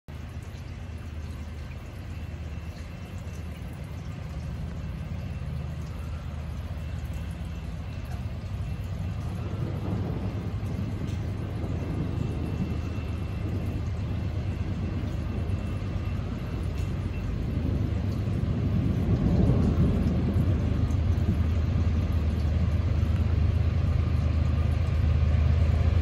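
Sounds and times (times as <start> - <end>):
diesel locomotives rumbling: 0.1 - 26.0.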